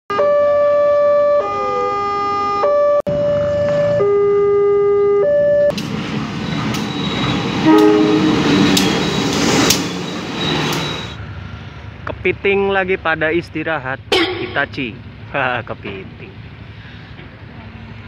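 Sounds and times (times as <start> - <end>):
level crossing two-tone alarm: 0.1 - 5.7, 10.0 - 11.2
train rumble with wheel clicks: 5.7 - 11.2, 14.1 - 18.0
train horn blast: 7.5 - 9.1.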